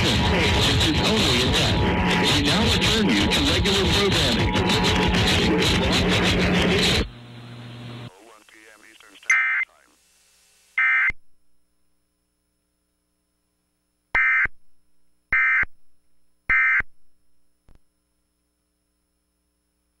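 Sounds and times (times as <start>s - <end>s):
harsh buzzing data tone bursts: 8.3s - 11.3s, 14.1s - 14.7s, 15.3s - 15.9s, 16.5s - 17.1s.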